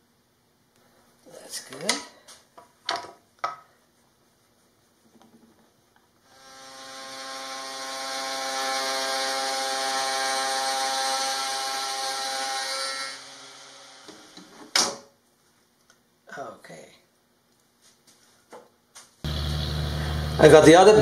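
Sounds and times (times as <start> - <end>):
router whining: 6.3 - 14.5, 19.3 - 21.0.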